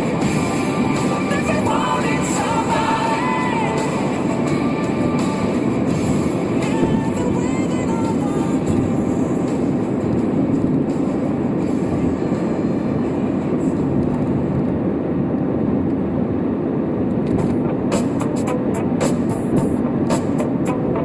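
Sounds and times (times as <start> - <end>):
road and engine rumble in car: 0.0 - 21.0.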